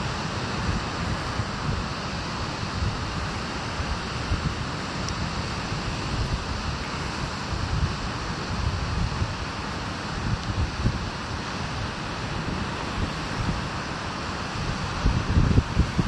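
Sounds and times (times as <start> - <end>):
wind buffeting microphone: 0.0 - 16.0
wind rushing: 10.1 - 16.0.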